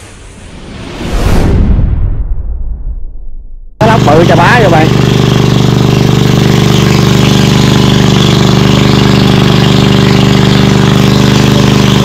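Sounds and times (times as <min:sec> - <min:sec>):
engine running steadily: 0:03.8 - 0:12.0.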